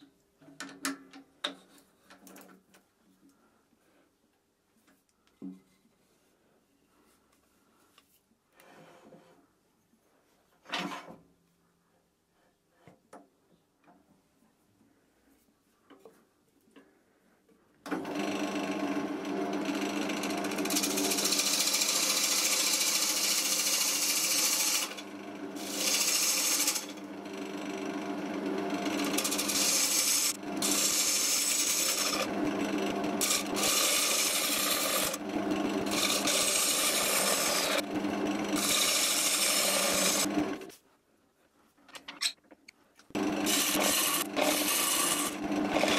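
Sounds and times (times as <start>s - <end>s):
wood lathe humming: 18.0s - 40.7s, 43.1s - 45.9s
gouge cutting wood rasping hiss: 25.6s - 26.9s, 29.0s - 32.3s, 38.6s - 40.3s.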